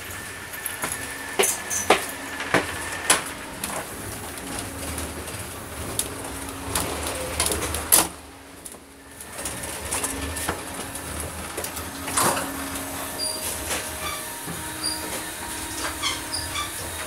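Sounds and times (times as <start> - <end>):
train carriage hum: 0.0 - 17.0.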